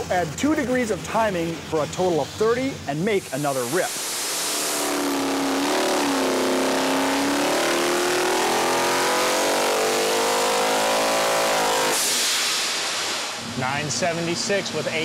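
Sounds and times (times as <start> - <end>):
blow-off valve hiss: 3.1 - 7.4, 11.8 - 13.6
supercharged engine revving: 3.2 - 13.4.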